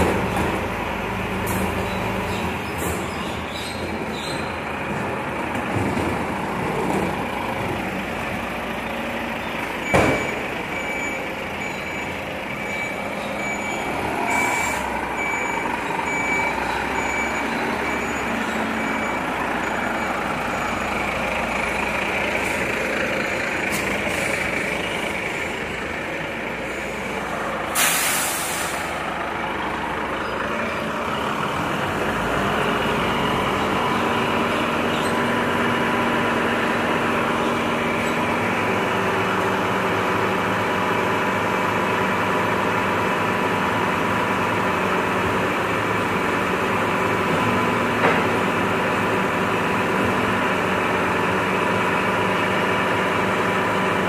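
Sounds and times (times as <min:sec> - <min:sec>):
truck diesel engine running: 0:00.0 - 0:54.0
reversing alarm beeping: 0:09.8 - 0:21.2
air brake hiss: 0:27.7 - 0:29.0.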